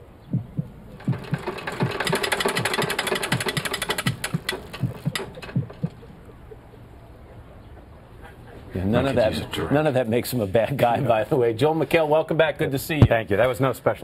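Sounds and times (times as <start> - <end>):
dull low thuds: 0.2 - 2.8
fast mechanical rattle: 0.9 - 6.3.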